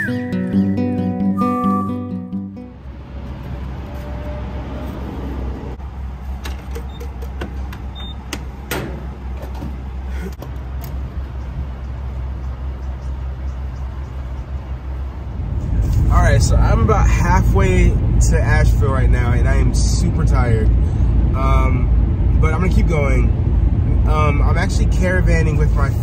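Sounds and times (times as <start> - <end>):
steady low hum: 5.2 - 26.0.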